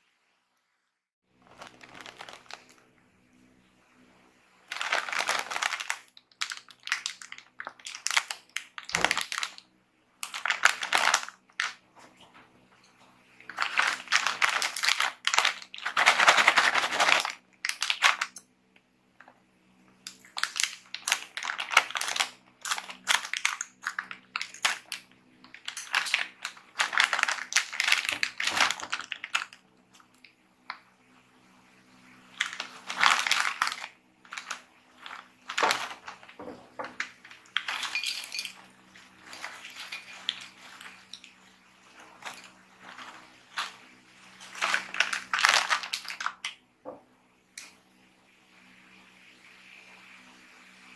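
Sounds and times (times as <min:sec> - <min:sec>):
plastic snack bag crinkling: 0:01.3 - 0:03.0, 0:04.6 - 0:11.9, 0:13.4 - 0:18.4, 0:20.0 - 0:30.8, 0:32.2 - 0:46.6.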